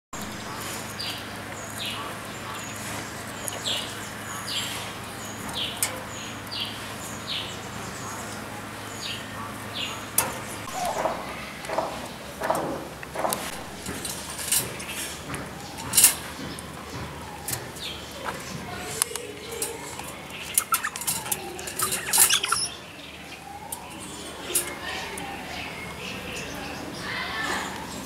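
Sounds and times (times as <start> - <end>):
parrots chirping: 17.4 - 26.5.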